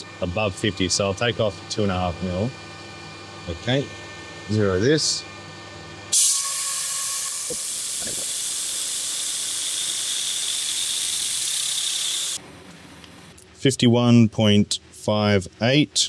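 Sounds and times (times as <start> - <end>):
compressed air hissing: 6.1 - 12.4.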